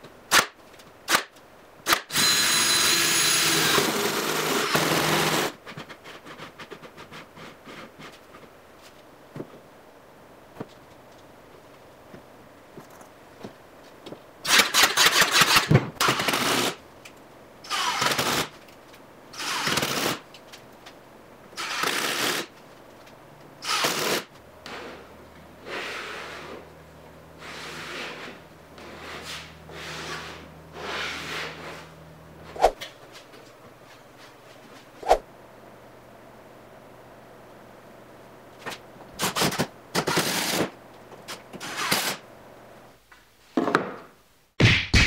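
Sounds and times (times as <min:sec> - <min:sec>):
pneumatic nailer firing into plywood: 0:00.3 - 0:01.3, 0:01.9 - 0:04.0, 0:14.5 - 0:16.8, 0:19.4 - 0:20.2, 0:23.6 - 0:24.3, 0:39.2 - 0:40.8, 0:41.6 - 0:42.2.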